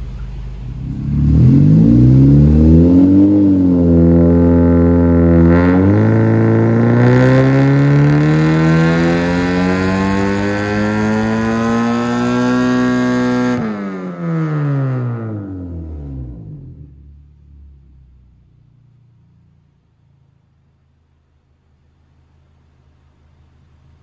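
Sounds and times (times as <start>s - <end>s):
car engine revving on a dyno: 0.6s - 17.1s.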